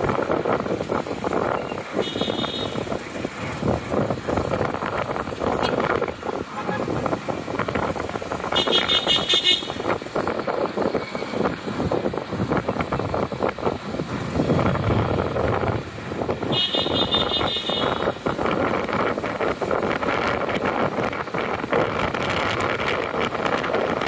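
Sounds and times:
street traffic engines: 0.0 - 24.0.

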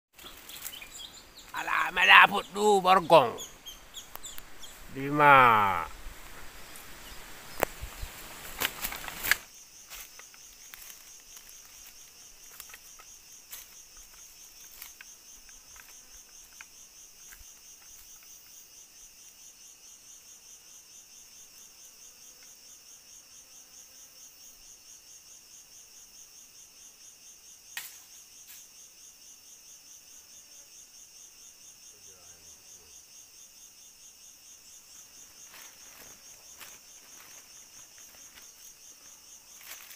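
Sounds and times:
forest insects droning: 0.1 - 39.9.

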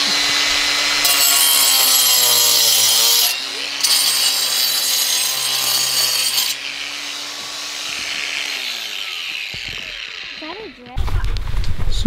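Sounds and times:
angle grinder cutting brick: 0.0 - 11.0
grinder motor whining: 0.0 - 11.0.

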